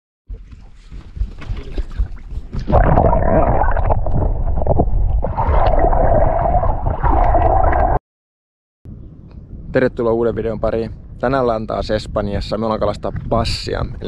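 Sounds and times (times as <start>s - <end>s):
wind: 0.3s - 5.9s, 8.9s - 14.0s
muffled underwater water rush: 1.8s - 8.0s.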